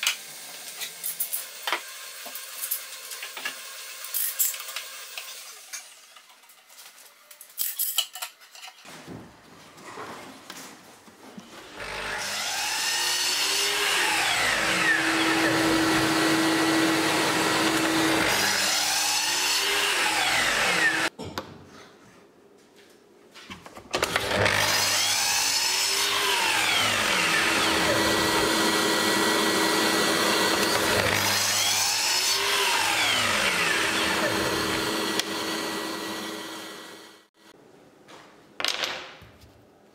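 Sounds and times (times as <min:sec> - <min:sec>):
miter saw cutting wood: 0:11.6 - 0:21.1, 0:24.0 - 0:37.3.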